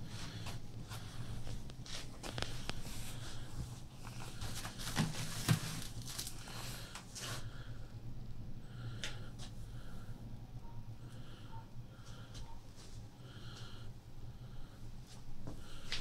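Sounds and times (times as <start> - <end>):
steady low hum: 0.0 - 16.0
rustles: 0.3 - 7.4.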